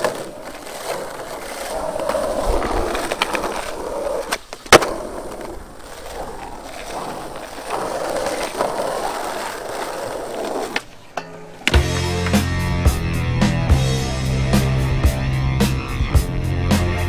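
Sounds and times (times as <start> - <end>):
skateboard clacking: 0.0 - 13.0
skateboard wheels rolling on pavement: 0.0 - 17.0.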